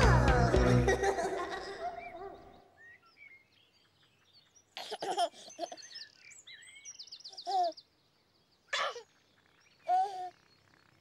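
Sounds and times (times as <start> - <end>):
baby giggling: 0.0 - 2.5, 4.8 - 6.0, 7.5 - 7.7
birdsong chirps and trills: 1.0 - 11.0.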